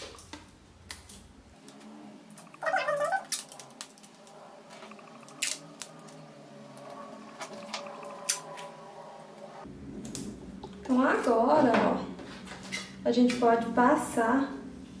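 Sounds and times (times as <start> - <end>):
paper crackle: 2.6 - 6.2.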